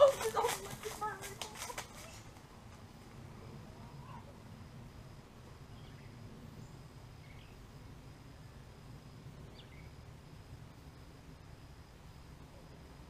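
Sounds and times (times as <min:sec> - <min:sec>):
faint bird chirps: 0:05.7 - 0:07.7, 0:09.4 - 0:10.0.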